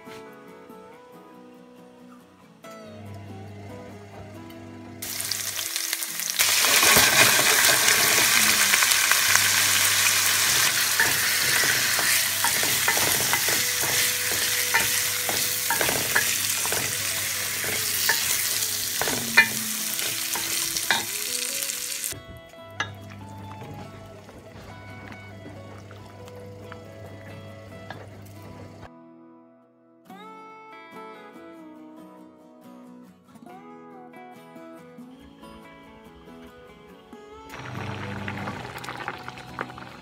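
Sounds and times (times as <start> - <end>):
rice sizzling in oil: 5.0 - 22.2, 37.5 - 40.0.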